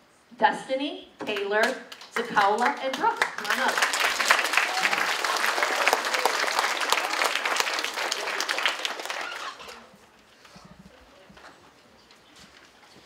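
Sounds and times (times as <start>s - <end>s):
audience applauding: 1.6s - 10.0s.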